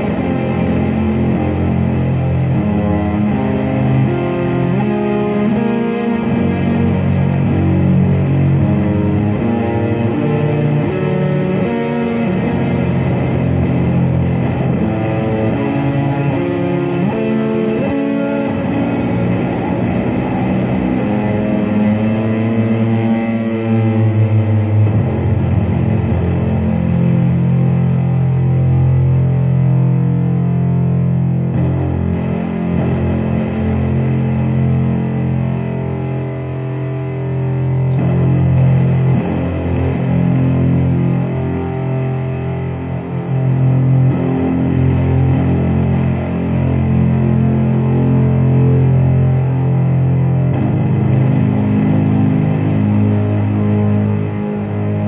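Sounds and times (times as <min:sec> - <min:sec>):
electric guitar sustained notes: 0:00.0 - 0:55.0
steady low drone: 0:00.0 - 0:55.0.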